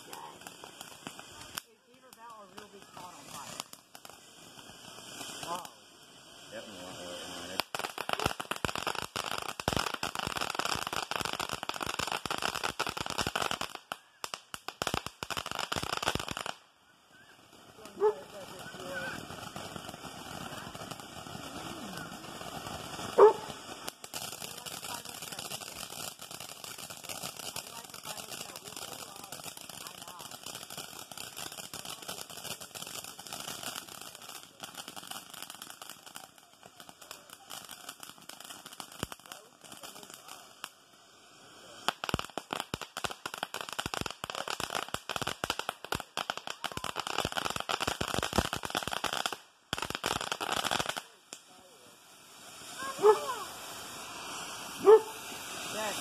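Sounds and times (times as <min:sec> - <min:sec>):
firework fountain hissing and crackling: 0:00.0 - 0:56.0
dog barking: 0:18.0 - 0:18.2, 0:23.2 - 0:23.5, 0:53.0 - 0:53.3, 0:54.8 - 0:55.2.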